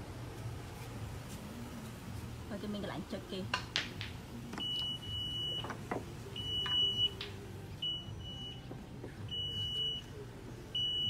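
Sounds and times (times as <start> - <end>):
high warning buzzer beeps: 4.6 - 5.8, 6.4 - 7.2, 7.8 - 10.1, 10.7 - 11.0.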